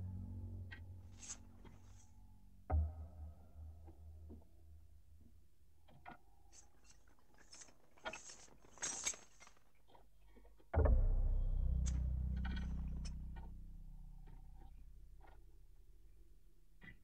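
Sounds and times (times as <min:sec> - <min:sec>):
deep low boom: 0:10.8 - 0:16.5.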